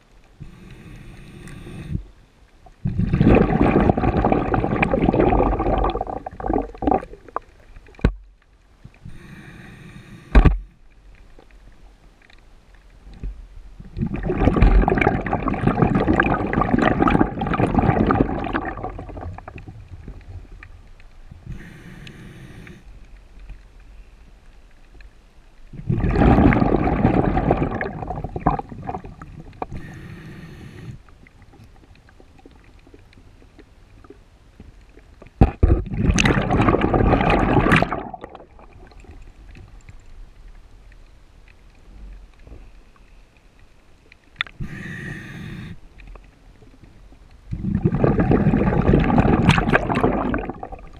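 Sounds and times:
regulator hissing inhale: 0.4s - 2.1s, 9.0s - 10.4s, 21.4s - 23.0s, 29.6s - 31.1s, 44.6s - 46.2s
exhaled bubbles rushing: 2.8s - 7.6s, 13.8s - 20.6s, 25.8s - 29.8s, 35.4s - 39.6s, 47.5s - 50.9s.

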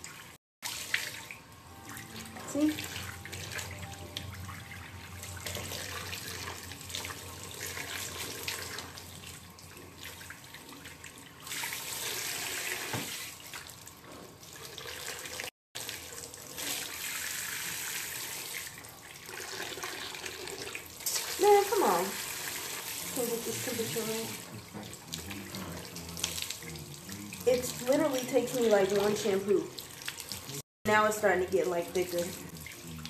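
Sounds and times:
water spraying into sink: 11.4s - 13.7s, 19.4s - 32.8s.

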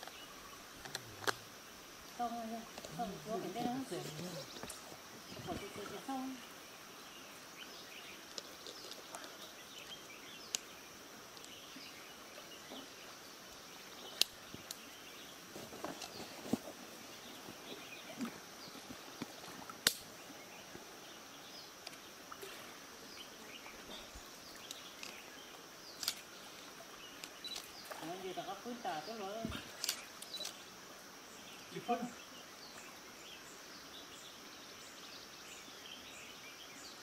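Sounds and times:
shallow stream running: 0.0s - 37.0s
water splashes: 26.2s - 30.2s.

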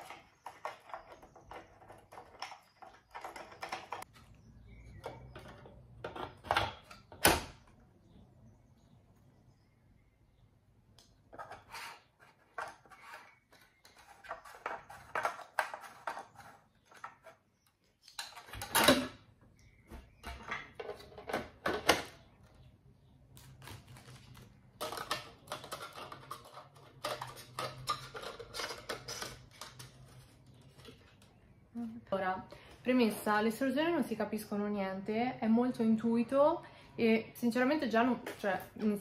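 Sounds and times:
plastic fan parts clicking and rattling: 24.8s - 31.2s.

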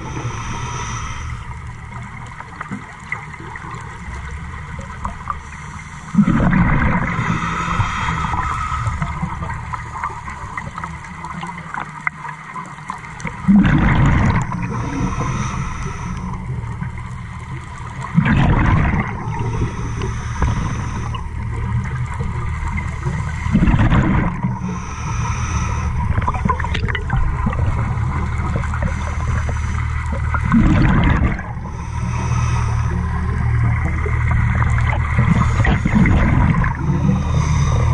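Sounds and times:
diver breathing through regulator: 0.0s - 2.0s, 5.2s - 10.8s, 13.8s - 17.4s, 18.5s - 26.8s, 27.7s - 37.9s
exhaled bubbles gurgling: 0.0s - 37.9s.

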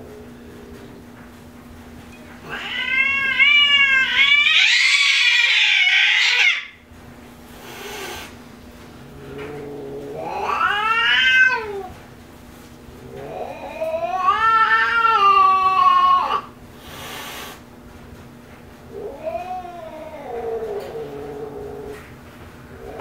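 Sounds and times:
cat hissing: 2.4s - 6.8s, 7.5s - 8.4s, 9.2s - 12.0s, 13.2s - 17.7s
cat yowling: 2.4s - 6.8s, 10.2s - 11.9s, 13.3s - 16.5s.

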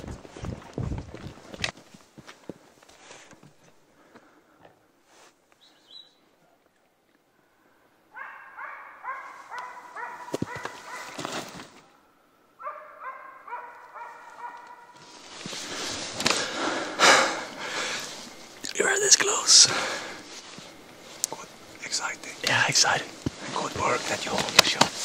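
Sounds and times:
dog barking: 8.1s - 11.2s, 12.6s - 15.0s.

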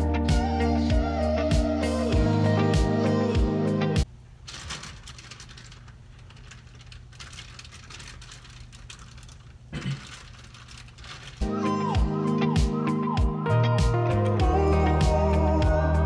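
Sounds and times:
background guitar music: 0.0s - 4.1s, 11.4s - 16.0s.

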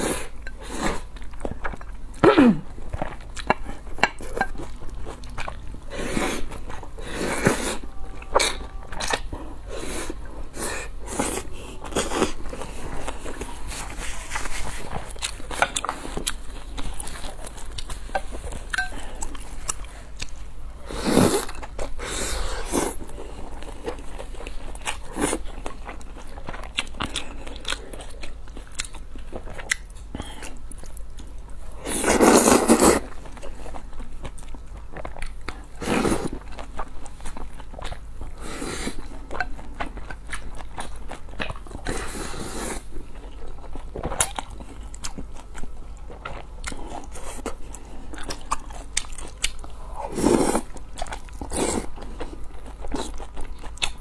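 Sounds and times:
chewing and mouth clicks: 23.0s - 38.4s, 39.0s - 42.1s, 43.0s - 54.0s
slurping noodles: 31.8s - 33.1s.

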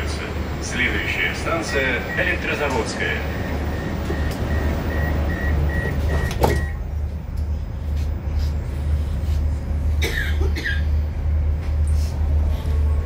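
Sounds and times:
low train hum: 0.0s - 13.0s
door warning beeps: 1.5s - 6.8s.

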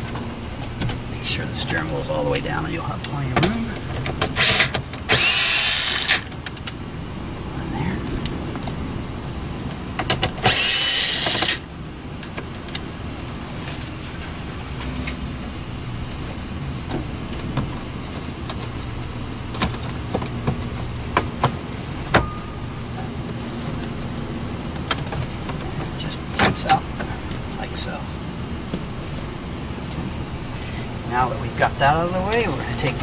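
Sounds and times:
cordless drill whirring: 4.4s - 6.2s, 10.4s - 11.6s.

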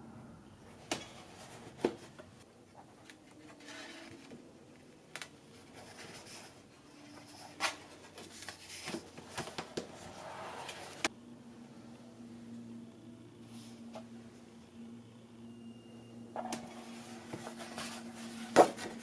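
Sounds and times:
paper pages rustling: 5.1s - 11.1s, 16.6s - 19.0s.

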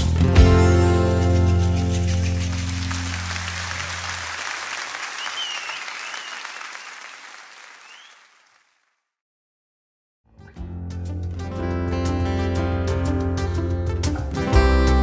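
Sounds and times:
audience applauding and cheering: 1.7s - 8.8s
high whistles: 3.2s - 8.6s.

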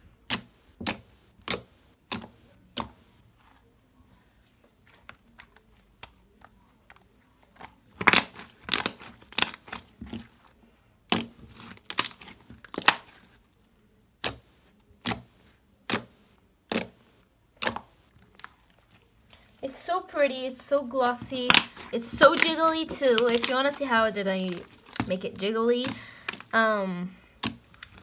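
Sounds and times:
hands squishing slime: 0.2s - 3.7s, 4.4s - 28.0s
wet slime pops: 8.0s - 9.9s, 11.1s - 13.2s, 14.2s - 17.0s, 21.2s - 23.8s.

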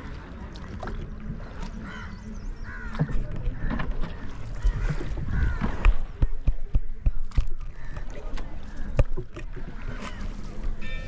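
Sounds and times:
wooden knocks of oars and hull: 2.6s - 11.0s.

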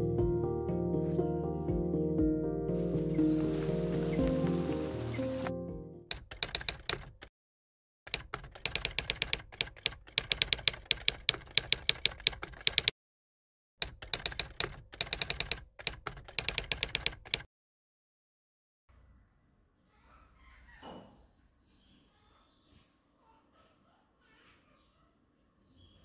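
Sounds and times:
typewriter keys clacking: 6.1s - 7.3s, 8.1s - 12.9s, 13.8s - 17.5s.

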